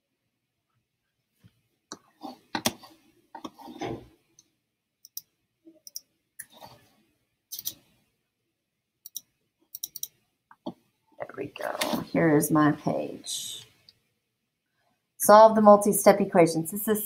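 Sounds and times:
computer mouse clicks: 0:05.0 - 0:06.6, 0:07.5 - 0:07.8, 0:09.0 - 0:10.2.

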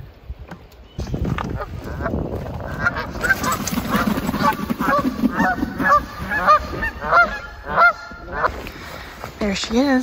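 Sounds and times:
geese honking: 0:01.6 - 0:08.8.

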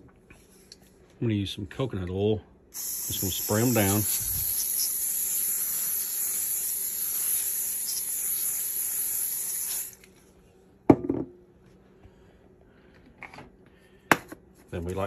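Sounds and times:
cooking spray hissing: 0:02.8 - 0:10.0.

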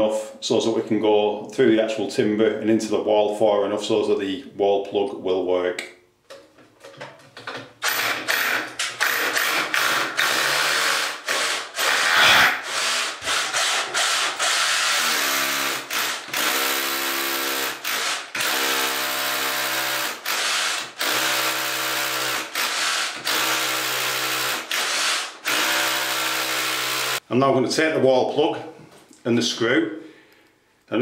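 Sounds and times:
power drill boring into masonry: 0:07.8 - 0:27.2.

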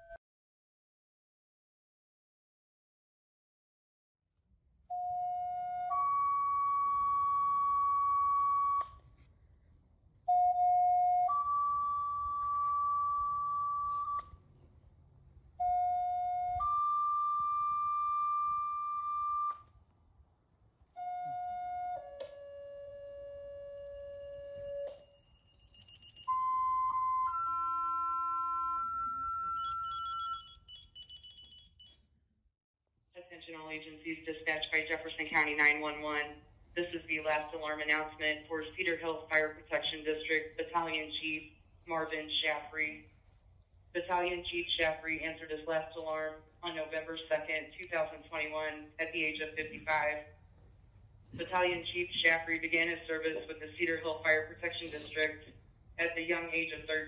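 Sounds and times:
two-tone paging tones: 0:10.4 - 0:14.4, 0:24.5 - 0:32.0.

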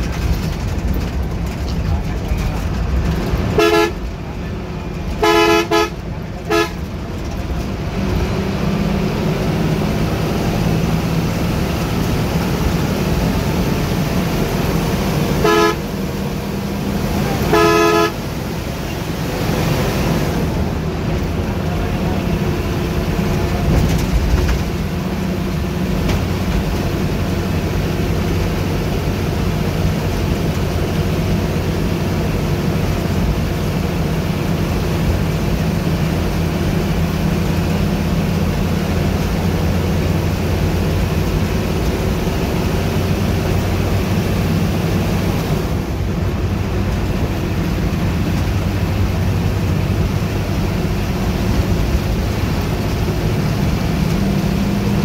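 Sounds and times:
bus engine drone and road noise: 0:00.0 - 0:55.0
vehicle horn: 0:03.5 - 0:04.1, 0:05.1 - 0:06.9, 0:15.3 - 0:16.0, 0:17.2 - 0:18.3.

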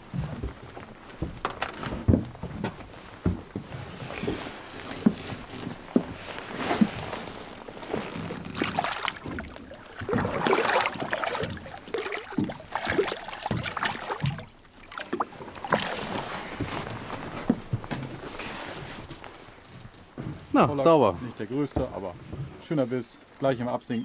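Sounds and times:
fish thrashing in water: 0:07.8 - 0:17.6.

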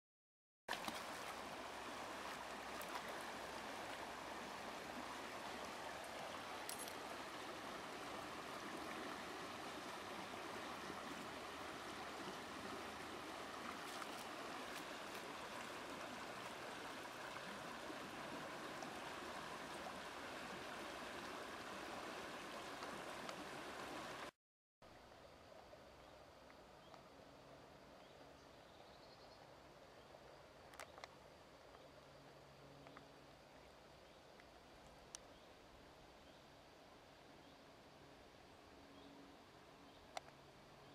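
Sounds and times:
stream running over stones: 0:00.7 - 0:24.3.

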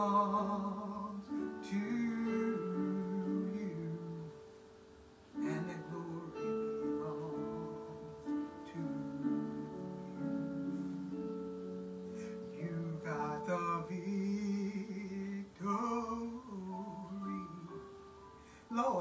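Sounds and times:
woman singing wordless phrases: 0:05.4 - 0:10.4, 0:12.5 - 0:17.7.

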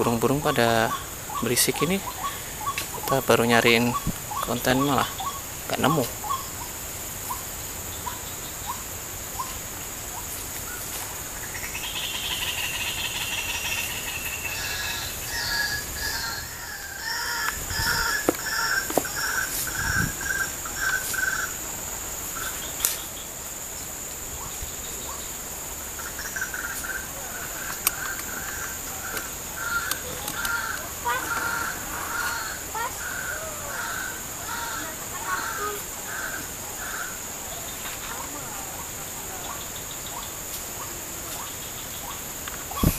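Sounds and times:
repeated bird calls: 0:00.0 - 0:23.4, 0:24.4 - 0:42.9
insects buzzing: 0:00.0 - 0:42.9
sharp clicks: 0:27.6 - 0:30.9.

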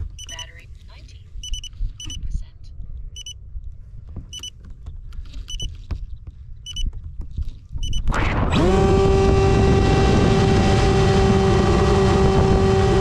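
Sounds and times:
high-pitched electronic beeps: 0:00.1 - 0:00.6, 0:01.4 - 0:02.3, 0:03.2 - 0:03.4, 0:04.3 - 0:04.5, 0:05.5 - 0:05.7, 0:07.8 - 0:08.1
wind rumble on microphone: 0:01.2 - 0:13.0.

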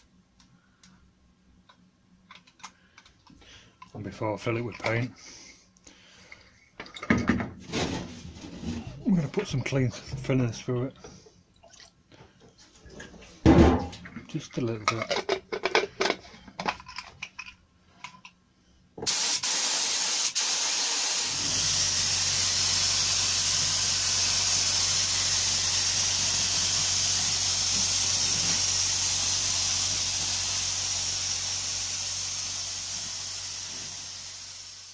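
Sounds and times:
spray gun hissing: 0:19.1 - 0:34.9.

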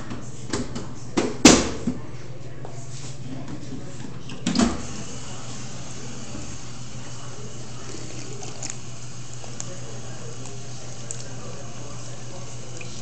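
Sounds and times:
drinking fountain water splashing: 0:04.8 - 0:13.0.

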